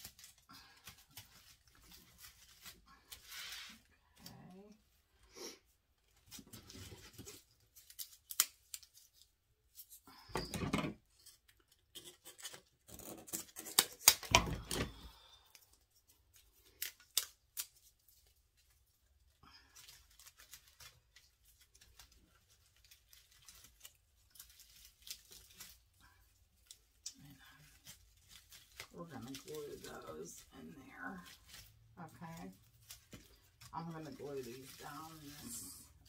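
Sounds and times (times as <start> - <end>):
plastic sprigs rustling: 0.0 - 10.0, 11.0 - 36.0
scissors snipping: 7.9 - 8.9.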